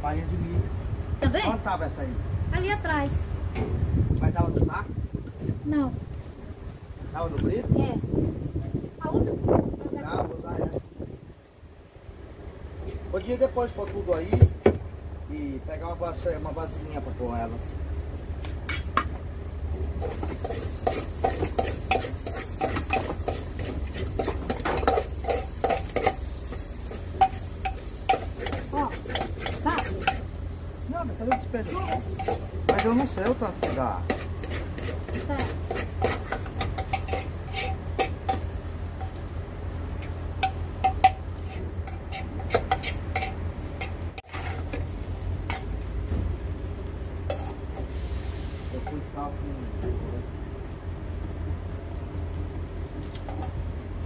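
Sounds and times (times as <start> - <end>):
low rumble: 0.0 - 13.4
food sizzling: 0.0 - 54.0
metal spoon scraping frying pan: 18.6 - 19.1, 20.0 - 30.4, 31.3 - 39.2, 40.0 - 45.8, 47.2 - 48.0, 53.3 - 53.6.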